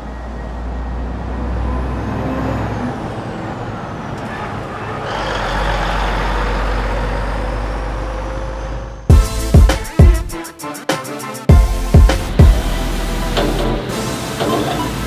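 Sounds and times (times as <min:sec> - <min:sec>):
heavy truck engine rumble: 0:00.0 - 0:09.4
road noise: 0:00.0 - 0:09.6, 0:11.6 - 0:15.0.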